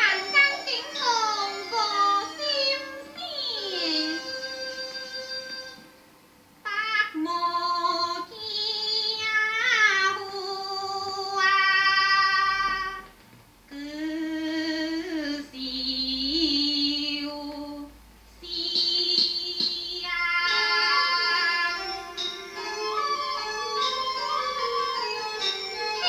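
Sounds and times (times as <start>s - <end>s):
woman singing opera: 0.0s - 5.8s, 7.0s - 13.1s, 13.7s - 22.0s.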